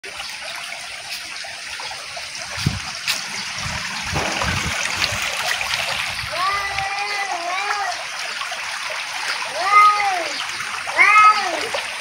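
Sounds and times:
water rushing in a channel: 0.0s - 12.0s
dull low thumps: 2.5s - 6.4s.

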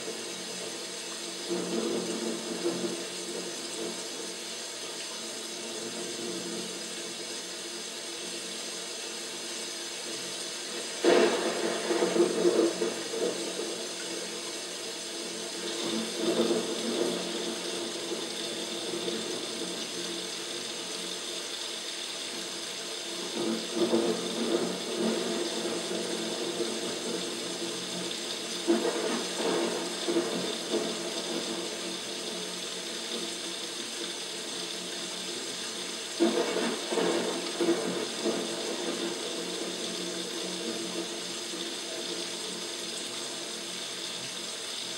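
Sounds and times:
water falling on plants: 10.4s - 44.9s.

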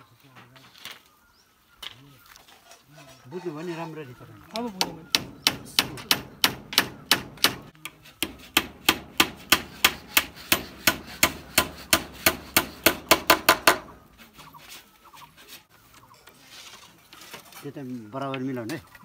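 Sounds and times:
hammer nailing wood: 4.8s - 14.0s.

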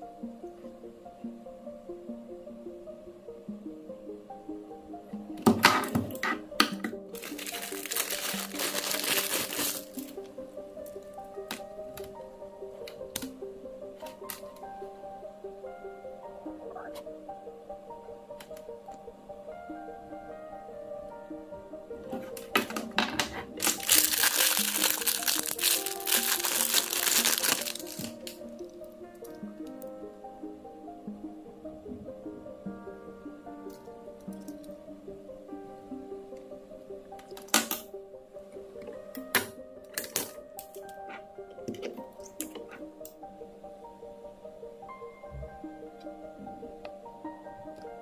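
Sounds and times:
background music: 0.0s - 48.0s
plastic bag crinkling: 7.1s - 10.3s, 22.4s - 28.4s.

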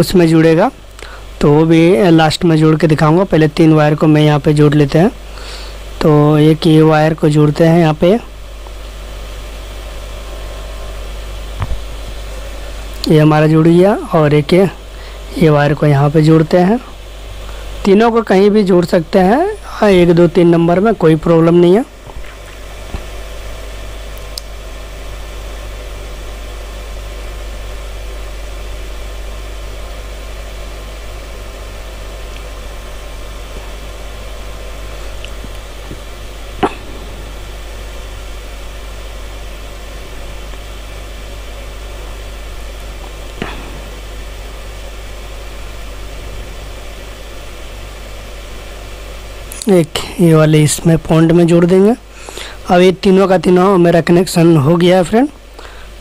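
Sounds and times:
background hum and hiss: 0.0s - 56.0s.

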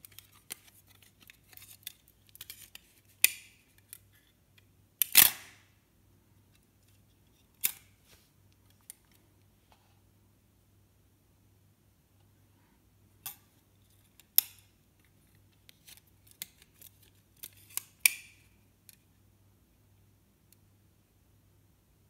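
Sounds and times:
metal clicks and snaps: 7.6s - 7.9s.

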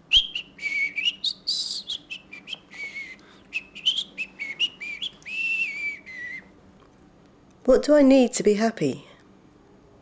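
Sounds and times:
person whistling a tune: 0.1s - 6.5s.

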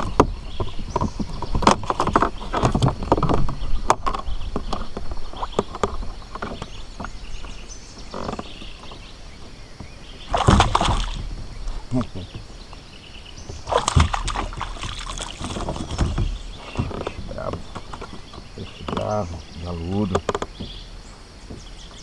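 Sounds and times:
fish being handled knocks and rustles: 0.0s - 11.8s, 13.4s - 19.2s, 20.0s - 22.0s.

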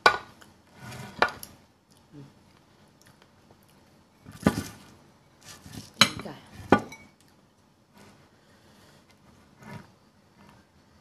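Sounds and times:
dishes clattering: 5.9s - 7.2s.

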